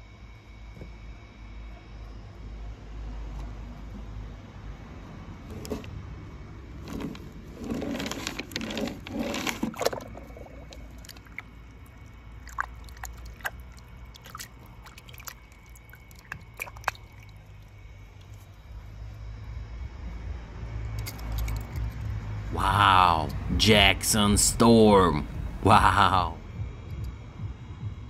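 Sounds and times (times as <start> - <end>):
water sloshing in a tub: 7.6 - 18.8
water dripping: 10.0 - 18.4.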